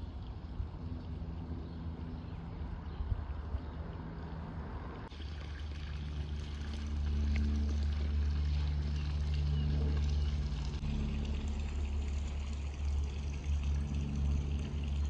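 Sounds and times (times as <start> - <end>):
hum: 0.0 - 15.0
moving vehicle rumble: 0.0 - 15.0.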